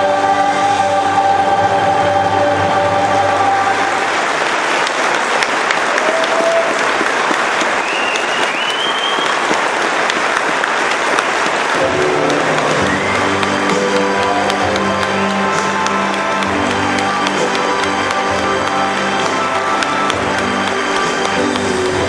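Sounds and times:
choir singing held chord: 0.0 - 4.2
music: 0.0 - 4.8, 11.4 - 22.0
audience applauding: 3.0 - 22.0
whistle from crowd: 7.8 - 9.4, 12.8 - 13.4.

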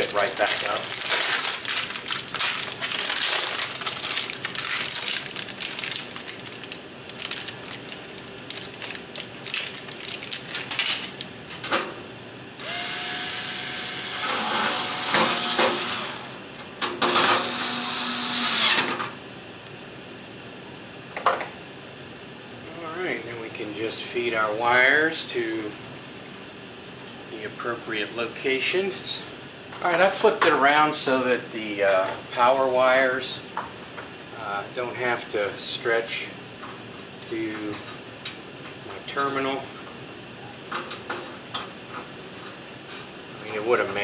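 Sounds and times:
wires rustling: 0.0 - 11.3.

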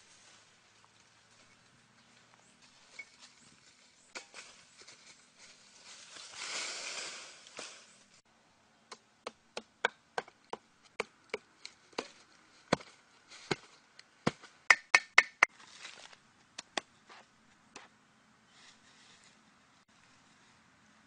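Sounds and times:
sharp wooden knocks and chops: 12.7 - 12.9, 14.3 - 15.5.

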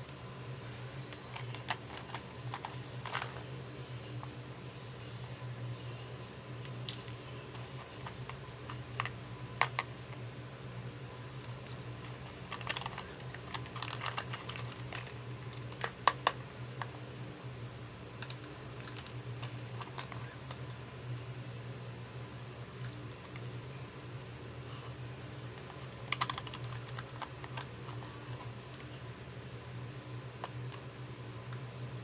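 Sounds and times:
steady low hum: 0.0 - 32.0
plastic toy pieces clicking: 26.0 - 27.6.

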